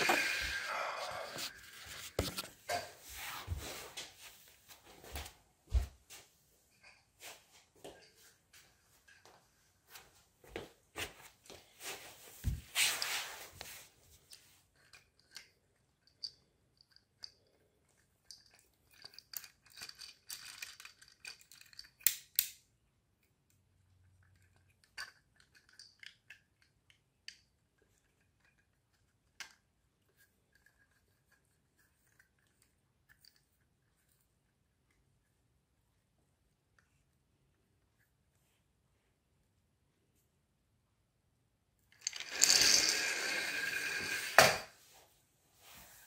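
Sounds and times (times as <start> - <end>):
plastic toy car clicks and rattles: 18.2 - 22.6, 24.2 - 29.6, 42.0 - 44.7.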